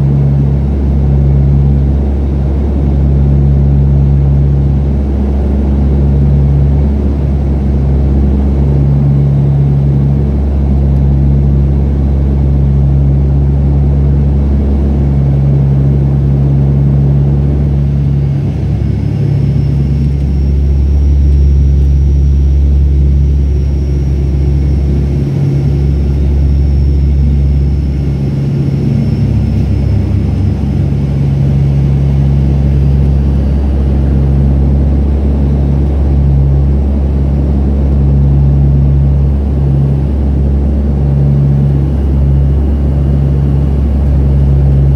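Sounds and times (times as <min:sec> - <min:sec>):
turboprop cabin drone: 0:00.0 - 0:44.9
faint high whine: 0:15.3 - 0:44.9.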